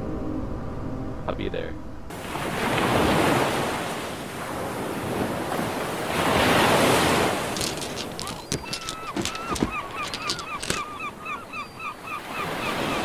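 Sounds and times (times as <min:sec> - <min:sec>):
waves washing onto pebbly shore: 0:02.1 - 0:10.8.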